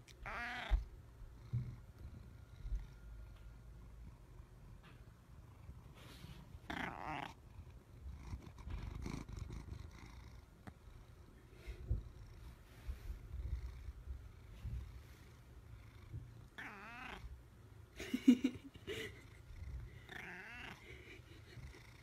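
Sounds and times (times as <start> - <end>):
cat meowing: 0.1 - 0.9, 6.7 - 7.4, 16.6 - 17.3, 20.1 - 20.8
cat purring: 0.3 - 17.4, 19.1 - 22.0.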